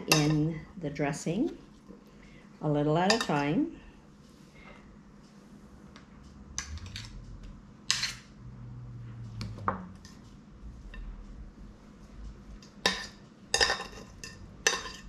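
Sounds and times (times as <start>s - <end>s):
utensil clinking against bowl: 12.8s - 15.0s.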